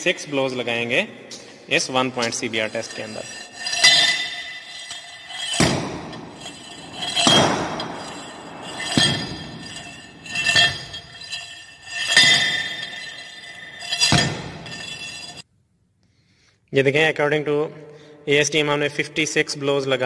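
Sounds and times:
rammer thudding with metallic clink: 0:02.2 - 0:15.4.

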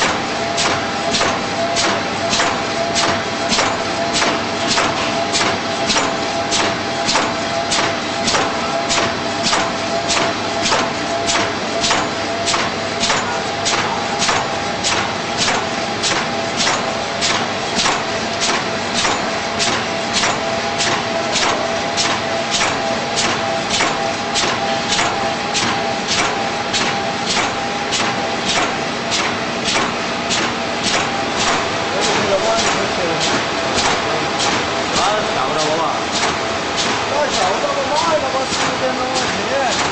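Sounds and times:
machine hum: 0:00.0 - 0:39.9
screen printer clacking: 0:00.0 - 0:39.9.

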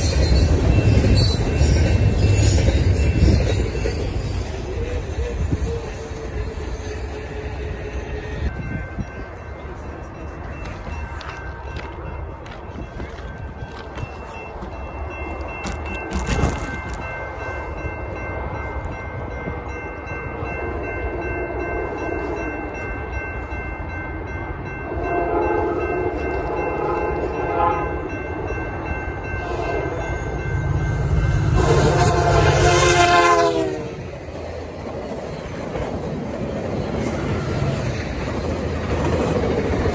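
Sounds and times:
level-crossing bell ringing: 0:00.0 - 0:33.1
train coaches rumbling and clattering: 0:00.0 - 0:39.9
train horn blasts: 0:24.8 - 0:28.2, 0:29.4 - 0:30.1, 0:31.4 - 0:34.1.

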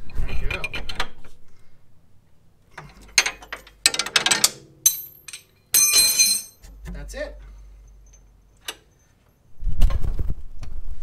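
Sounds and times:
tools clattering with metallic ringing: 0:02.9 - 0:06.6.

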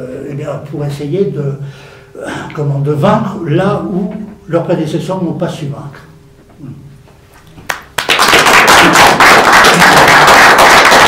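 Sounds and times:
audience applauding: 0:07.7 - 0:11.0.

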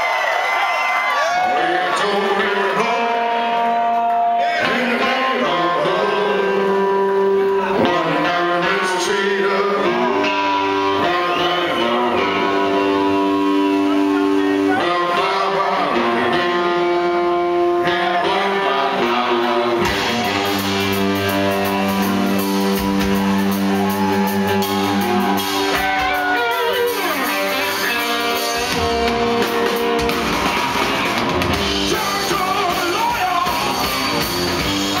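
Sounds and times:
drums: 0:00.0 - 0:35.0
bass guitar: 0:01.1 - 0:35.0
distorted electric guitars: 0:01.2 - 0:35.0
man singing: 0:01.4 - 0:21.5, 0:31.7 - 0:34.1.

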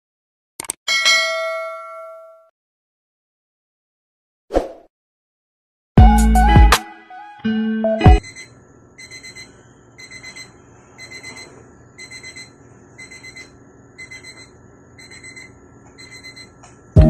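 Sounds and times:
alarm clock beeping: 0:08.2 - 0:16.6.

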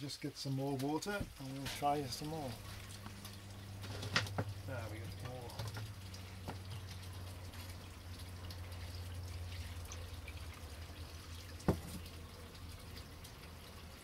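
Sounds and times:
water dripping into a cup: 0:00.7 - 0:14.0
cup knocking on workbench: 0:11.7 - 0:12.0.

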